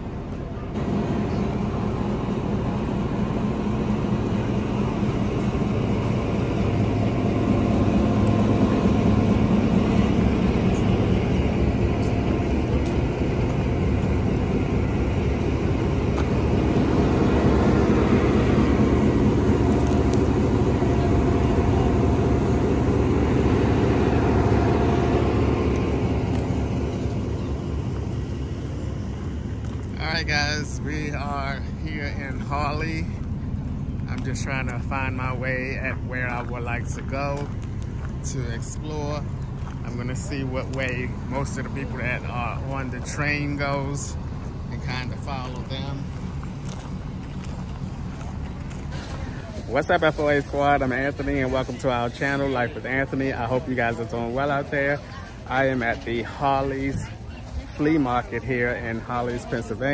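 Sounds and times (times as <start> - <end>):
engine humming: 0.0 - 59.9
footsteps crunching on gravel: 11.8 - 14.3, 27.9 - 30.0, 33.1 - 52.2.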